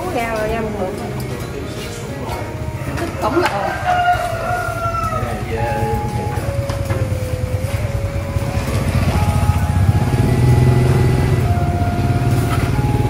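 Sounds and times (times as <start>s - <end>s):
melody of held notes: 0.0s - 13.0s
small engine running: 5.4s - 13.0s.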